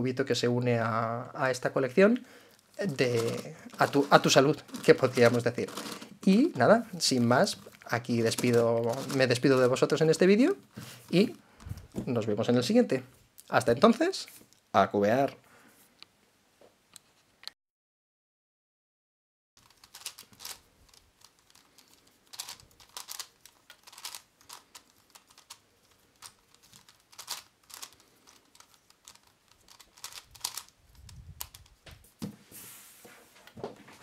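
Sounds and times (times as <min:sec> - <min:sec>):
plastic puzzle cube clicking: 0:03.1 - 0:06.1, 0:19.6 - 0:31.8.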